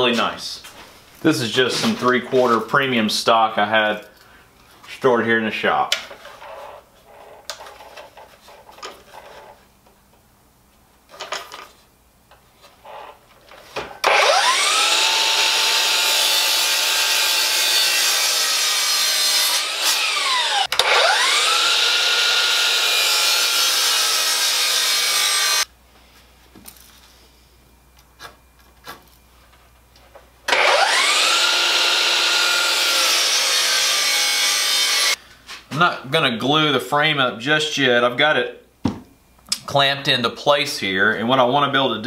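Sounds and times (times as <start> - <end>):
miter saw cutting wood: 14.0 - 25.7, 30.5 - 35.2.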